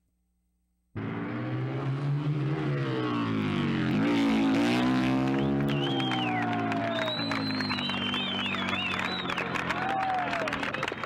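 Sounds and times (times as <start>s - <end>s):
motorcycle engine at high revs: 1.0s - 6.3s.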